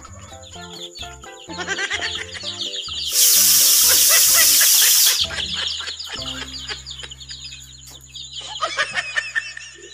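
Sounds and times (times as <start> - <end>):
chicks cheeping: 0.0 - 9.9
loud hiss: 3.1 - 5.3.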